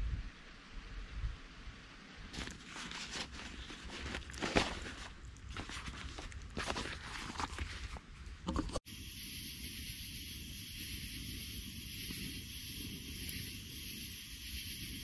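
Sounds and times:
canvas pack rustling: 0:02.3 - 0:08.0
steady hiss: 0:08.9 - 0:15.0.

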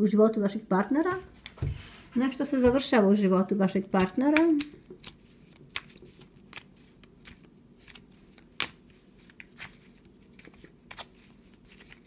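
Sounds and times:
cards being shuffled: 0:04.0 - 0:12.0.

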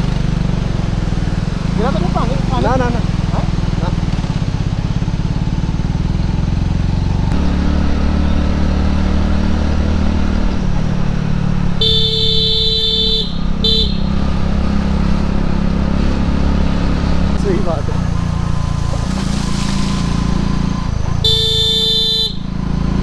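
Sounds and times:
motorcycle engine running: 0:00.0 - 0:23.0
motorcycle horn: 0:11.7 - 0:14.5, 0:21.1 - 0:22.6.

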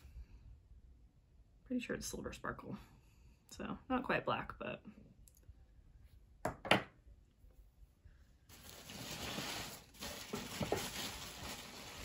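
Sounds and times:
packing material rustling: 0:08.5 - 0:12.0.

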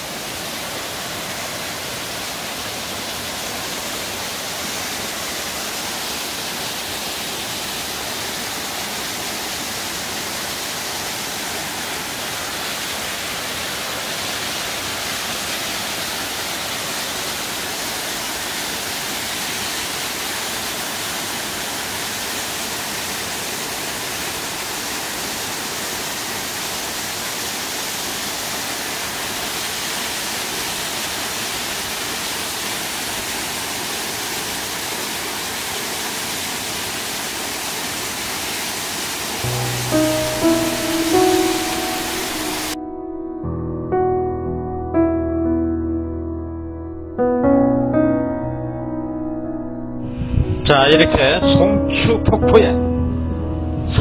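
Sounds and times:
waterfall rushing: 0:00.0 - 0:42.8.

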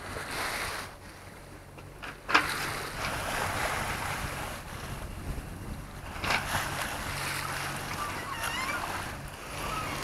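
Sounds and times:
water rushing along boat hull: 0:00.0 - 0:10.0
wind on microphone: 0:02.4 - 0:10.0.

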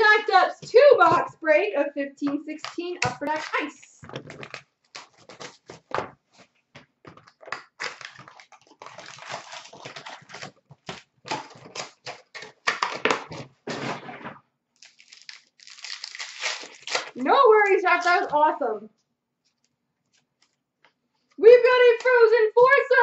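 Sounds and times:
card packs rustling and tapping: 0:02.2 - 0:14.0, 0:14.8 - 0:18.6
plastic wrapper crinkling and tearing: 0:02.6 - 0:06.0, 0:07.1 - 0:13.4, 0:14.8 - 0:18.4.

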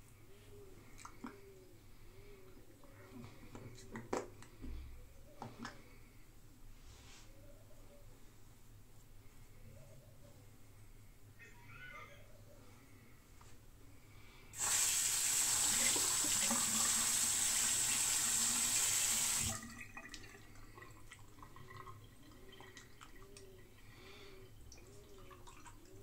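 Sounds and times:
water dripping: 0:14.6 - 0:23.9, 0:24.6 - 0:26.0.

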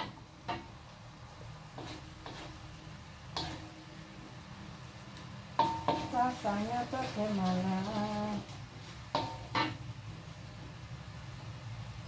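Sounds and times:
metal spatula scraping a wok: 0:01.7 - 0:02.7, 0:03.3 - 0:03.9, 0:05.6 - 0:09.8.

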